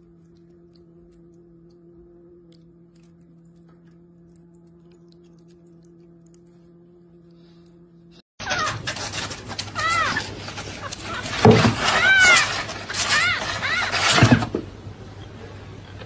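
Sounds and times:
water fountain pump humming: 0.0 - 6.6
rustling: 8.4 - 16.0
kitten mewing: 9.7 - 14.3.

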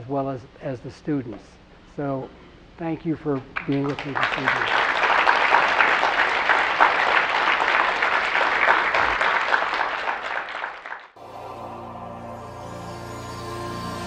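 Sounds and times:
audience applauding: 3.6 - 11.2
outro music: 11.2 - 14.0.

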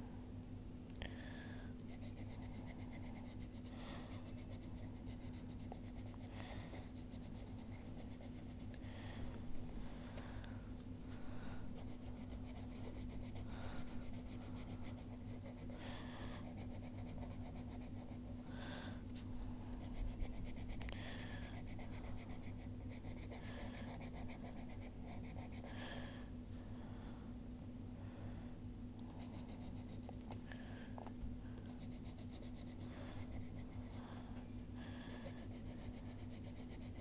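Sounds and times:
steady low hum: 0.0 - 37.0
pencil scratching on paper: 1.9 - 8.8, 11.8 - 18.4, 19.8 - 26.2, 29.2 - 30.2, 31.7 - 34.0, 35.0 - 37.0.

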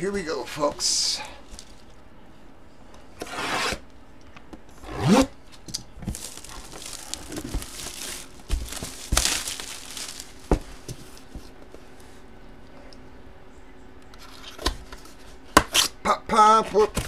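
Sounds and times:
plastic wrap crinkling: 6.0 - 11.3.

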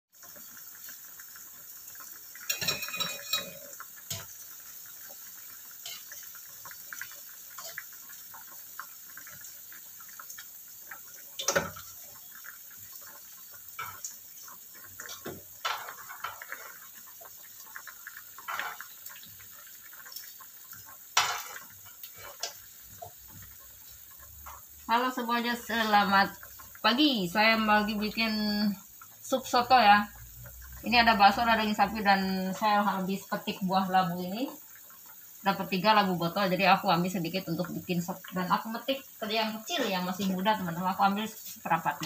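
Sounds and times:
water simmering with hiss: 0.1 - 42.0
metal utensil scraping a wok: 5.8 - 6.2, 7.6 - 7.9.

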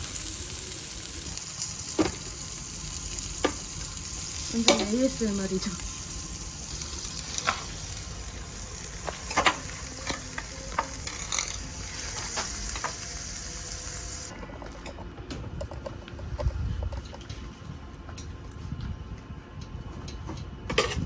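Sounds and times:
meat sizzling on a grill: 0.0 - 14.3.

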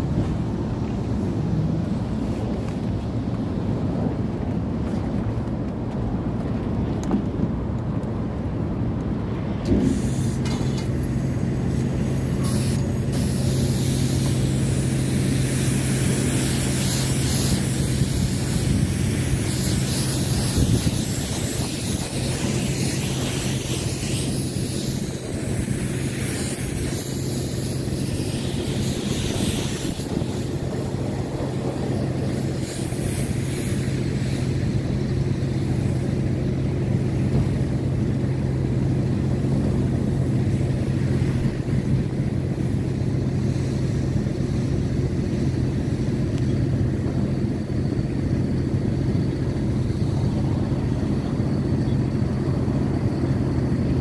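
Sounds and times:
pressure washer spraying water: 9.7 - 38.0.

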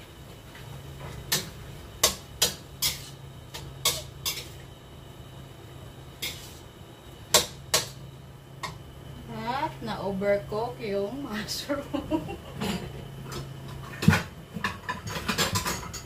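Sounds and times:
metal spatula scraping wok: 2.0 - 3.2, 3.8 - 4.6, 6.2 - 6.7.

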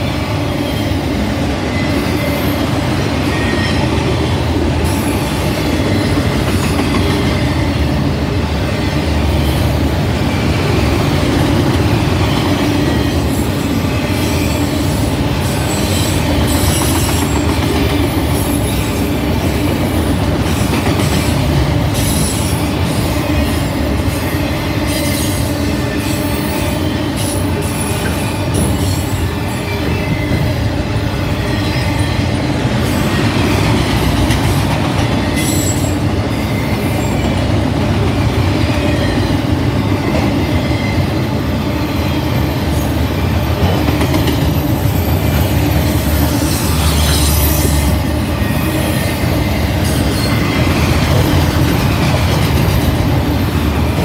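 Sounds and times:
train wheels rumbling on rail: 0.0 - 54.0
high wheel squeal: 22.0 - 33.6, 35.2 - 37.5, 44.5 - 51.9.

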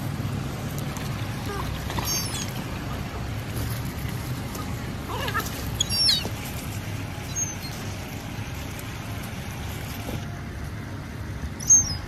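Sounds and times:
young gull squealing: 1.5 - 2.6, 5.1 - 6.3, 11.6 - 12.0.

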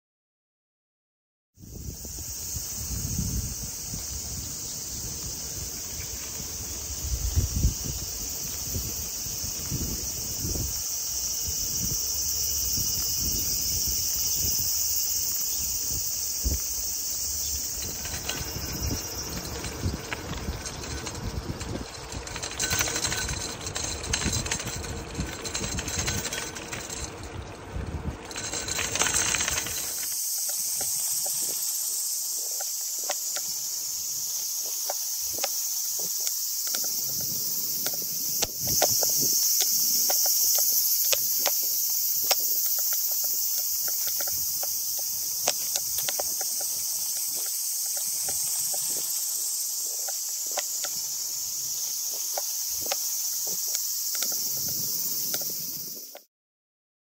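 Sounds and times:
insect chorus: 1.6 - 56.3.

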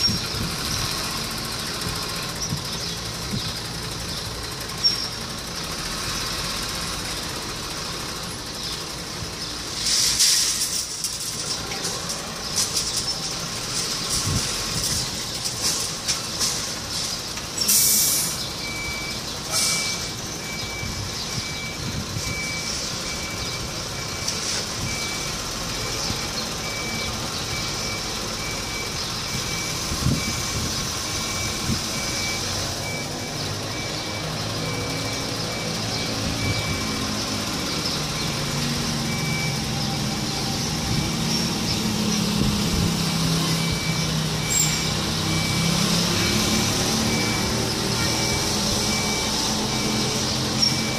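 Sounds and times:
diesel truck engine running: 0.0 - 50.9
air brake hisses: 9.7 - 10.6, 17.6 - 18.4, 19.5 - 20.0
reversing alarm beeping: 17.6 - 41.5, 43.3 - 50.9.

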